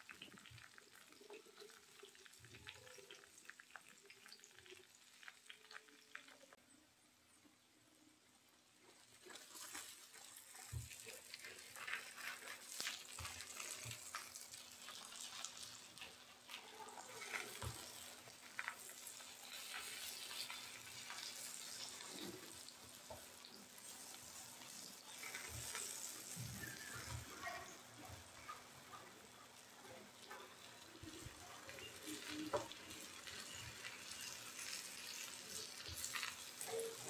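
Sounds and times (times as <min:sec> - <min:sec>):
pumpkin slices sizzling in oil: 0:00.0 - 0:06.6, 0:08.2 - 0:37.0
spatula scraping frying pan: 0:17.2 - 0:27.4.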